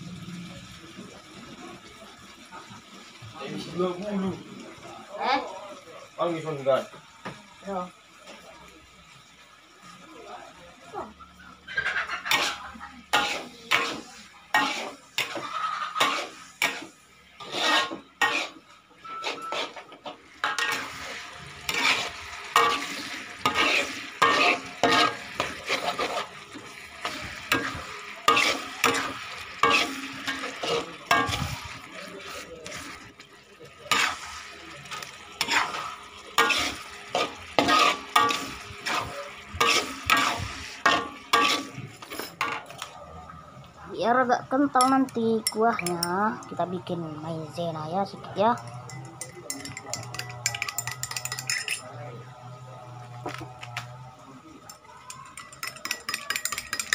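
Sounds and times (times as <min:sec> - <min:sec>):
frying sizzle: 0:00.0 - 0:56.9
metal spatula scraping a wok: 0:11.7 - 0:33.2, 0:33.8 - 0:42.8, 0:48.6 - 0:51.9.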